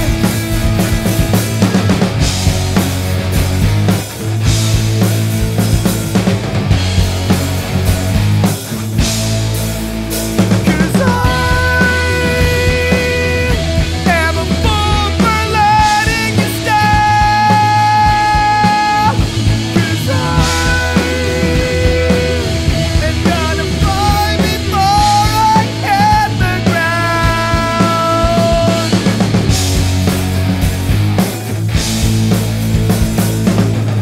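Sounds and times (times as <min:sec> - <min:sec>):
bass guitar: 0:00.0 - 0:34.0
drums: 0:00.0 - 0:34.0
electric guitar: 0:00.0 - 0:34.0
person singing long held notes: 0:19.8 - 0:29.0.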